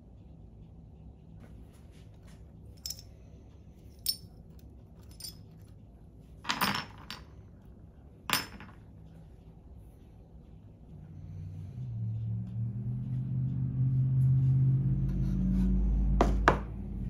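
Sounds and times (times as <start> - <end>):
metal clamps clinking and clattering: 4.0 - 5.6.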